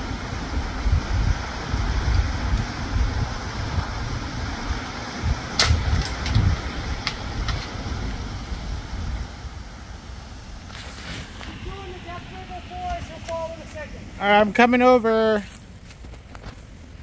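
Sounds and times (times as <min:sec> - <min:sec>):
air rifle shot crack: 0:05.6 - 0:06.3.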